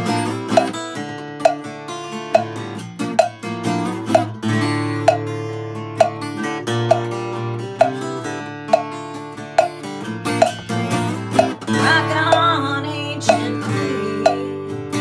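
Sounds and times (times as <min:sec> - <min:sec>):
acoustic guitar strumming: 0:00.0 - 0:15.0
muted cowbell clanks: 0:00.5 - 0:00.8, 0:01.4 - 0:01.7, 0:02.3 - 0:03.4, 0:04.1 - 0:05.4, 0:06.0 - 0:07.2, 0:07.8 - 0:08.1, 0:08.7 - 0:12.6, 0:13.3 - 0:14.4.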